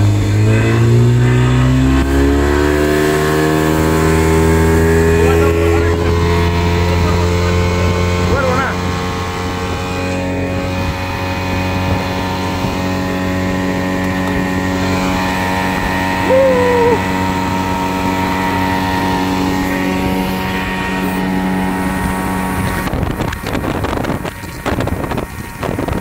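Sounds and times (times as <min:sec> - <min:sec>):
outboard motor running: 0:00.0 - 0:26.0
short wavering call: 0:16.2 - 0:17.3.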